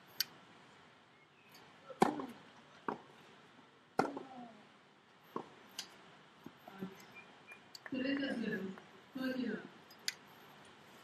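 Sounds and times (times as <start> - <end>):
racket hitting tennis ball: 1.9 - 3.2, 4.0 - 4.4, 5.3 - 6.6
tennis ball bouncing: 1.9 - 3.2, 4.0 - 4.4, 5.3 - 6.6.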